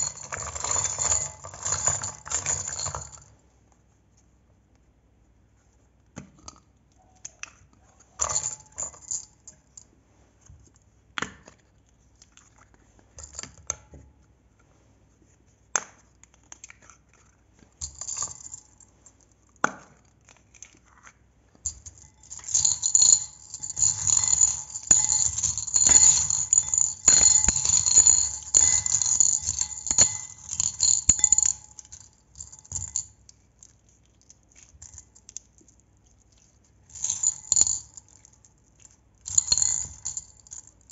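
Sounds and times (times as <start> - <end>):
rapid small clicks and rattling: 0.0 - 3.3, 20.2 - 40.9.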